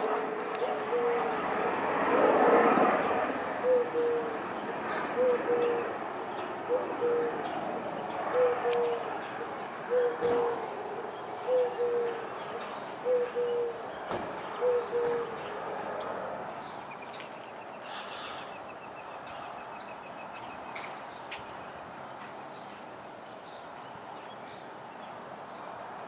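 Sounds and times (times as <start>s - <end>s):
bird cooing: 0.0s - 1.4s, 3.5s - 15.6s
distant helicopter rotor and engine: 0.0s - 22.4s.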